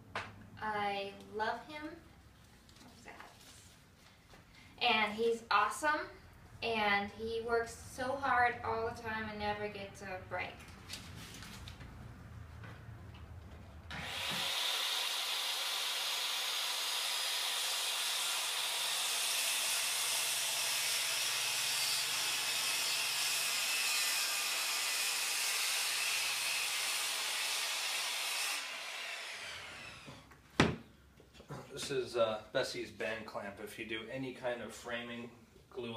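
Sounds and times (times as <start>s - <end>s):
circular saw cutting plywood: 13.9s - 30.2s.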